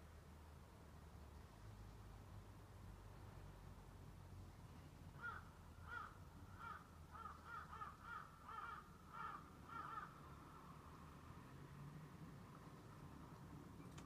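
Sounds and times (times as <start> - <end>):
crow cawing: 5.2 - 10.2.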